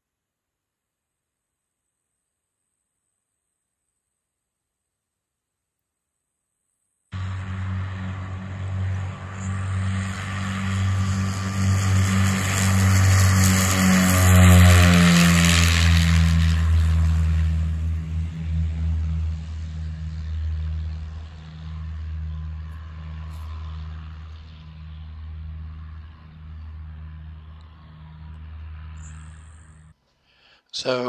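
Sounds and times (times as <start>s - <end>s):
propeller plane engines: 7.2s - 30.0s.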